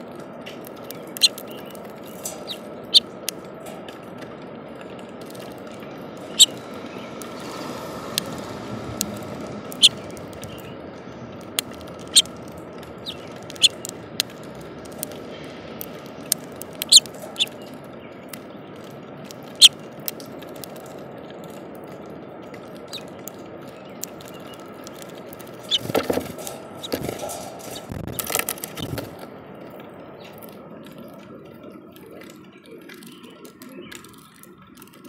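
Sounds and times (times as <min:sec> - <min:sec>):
rain on plastic bird feeder: 0:00.0 - 0:35.0
sharp ticks: 0:00.6 - 0:03.4, 0:06.2 - 0:07.4, 0:08.1 - 0:10.7, 0:11.3 - 0:17.7.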